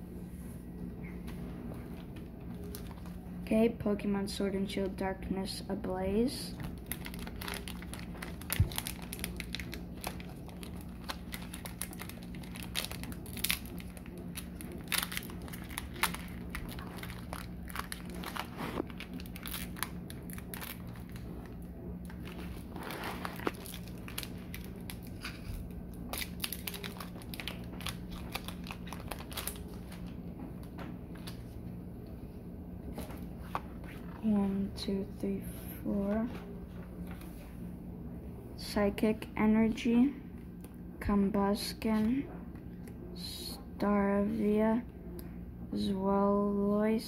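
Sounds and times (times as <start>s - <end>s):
foil wrapper crinkling: 2.5s - 3.2s, 6.6s - 30.2s.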